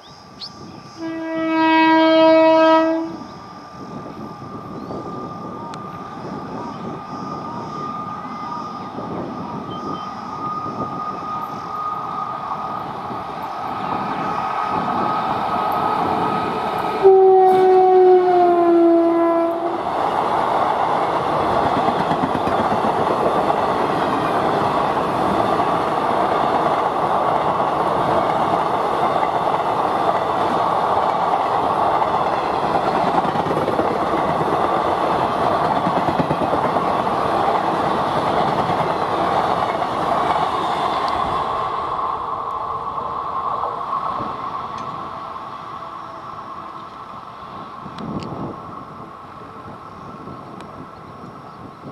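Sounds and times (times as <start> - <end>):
electric locomotive whine: 0.0 - 51.9
train horn: 0.9 - 3.2, 17.0 - 19.8.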